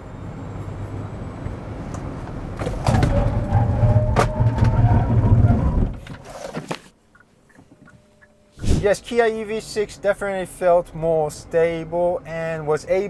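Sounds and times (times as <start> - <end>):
tyre and road noise: 0.0 - 7.9
brakes squealing: 0.6 - 6.0.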